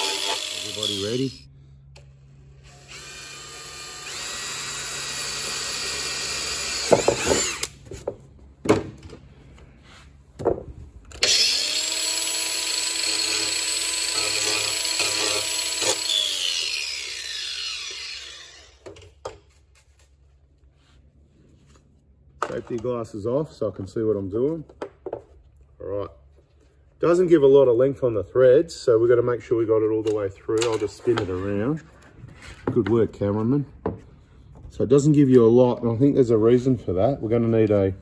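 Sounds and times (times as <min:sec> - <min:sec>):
cordless drill boring plastic: 0:00.0 - 0:01.4, 0:02.7 - 0:07.8, 0:11.2 - 0:18.8
angle grinder running: 0:00.0 - 0:01.5, 0:11.2 - 0:18.8.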